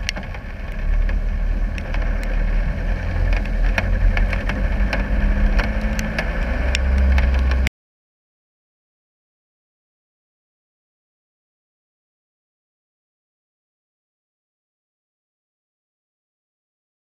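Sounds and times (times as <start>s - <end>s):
diesel engine running: 0.0s - 7.7s
sharp clicks and knocks: 0.0s - 7.7s.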